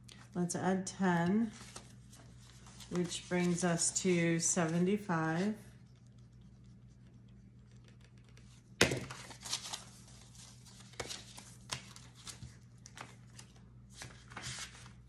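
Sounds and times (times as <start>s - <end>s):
paper bills rustling: 9.1s - 15.0s.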